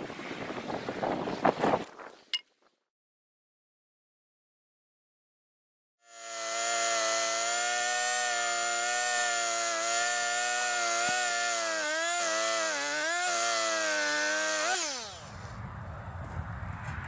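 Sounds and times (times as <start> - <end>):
chainsaw cutting wood: 6.0 - 15.4.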